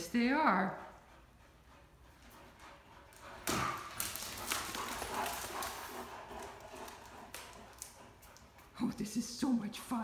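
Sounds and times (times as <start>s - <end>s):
dog claws clattering on tile: 3.1s - 8.7s.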